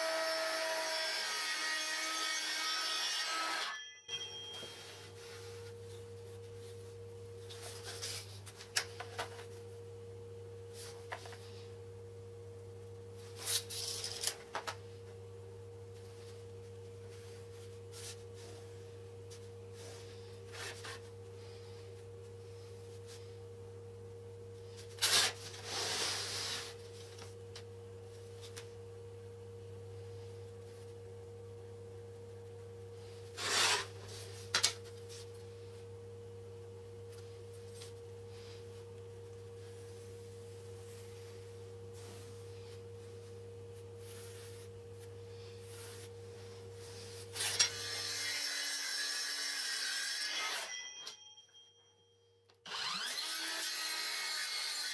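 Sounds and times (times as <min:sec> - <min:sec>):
faint high tone: 0:03.8 - 0:05.2.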